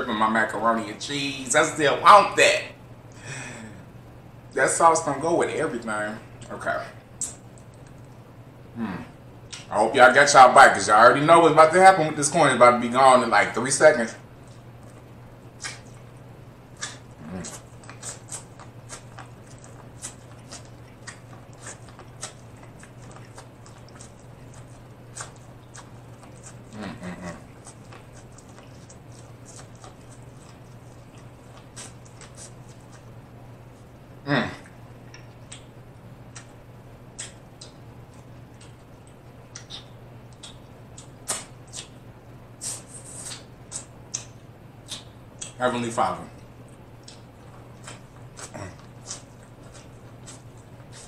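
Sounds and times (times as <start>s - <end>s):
steady low hum: 0.0s - 51.0s
person chewing and lip smacking: 6.4s - 8.2s, 8.8s - 9.7s, 14.3s - 34.0s, 34.6s - 45.6s, 46.4s - 51.0s.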